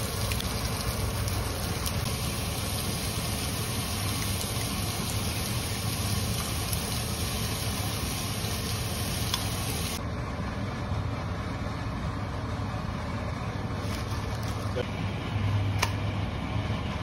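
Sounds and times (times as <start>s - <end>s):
low machine hum: 0.0s - 17.0s
steady hiss: 2.0s - 10.0s.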